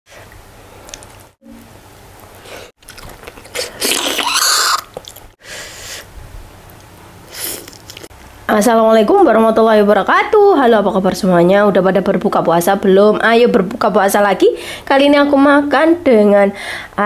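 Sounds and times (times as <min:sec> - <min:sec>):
person chewing and biting food: 0:02.8 - 0:05.3, 0:07.3 - 0:08.1.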